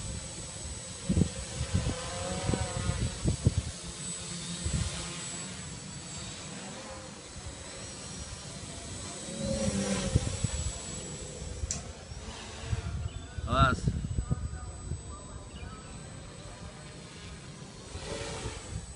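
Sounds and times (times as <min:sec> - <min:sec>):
wind rumble on microphone: 0:00.0 - 0:04.0, 0:04.6 - 0:05.1, 0:09.4 - 0:16.8, 0:17.8 - 0:18.9
drone propellers whirring: 0:00.0 - 0:18.9.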